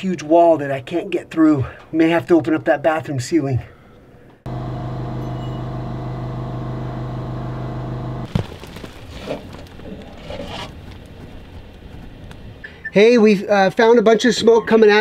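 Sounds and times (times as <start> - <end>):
machine hum: 4.5 - 8.4.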